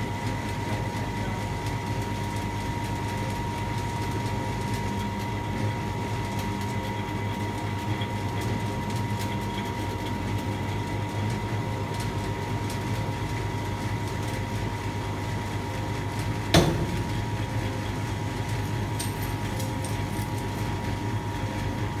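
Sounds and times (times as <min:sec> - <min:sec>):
hydraulic unit humming: 0:14.6 - 0:22.0.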